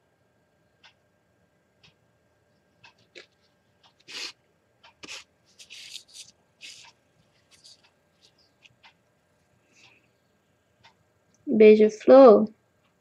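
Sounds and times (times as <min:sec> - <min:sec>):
paper rustling and rubbing: 0:05.0 - 0:08.8
faint ticks: 0:10.8 - 0:11.4.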